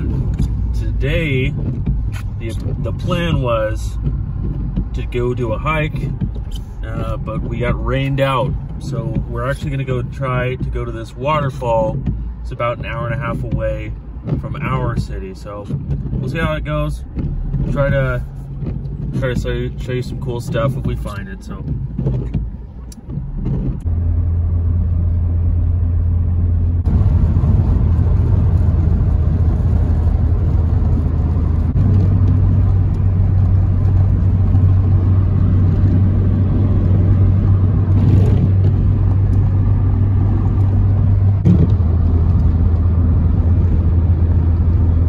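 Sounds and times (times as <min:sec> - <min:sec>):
car engine and road drone: 0:00.0 - 0:45.0.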